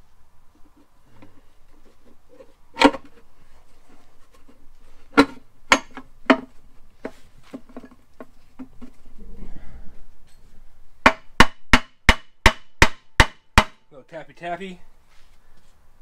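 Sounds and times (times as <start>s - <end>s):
sharp metal knocks: 5.2s - 6.5s, 11.0s - 13.8s.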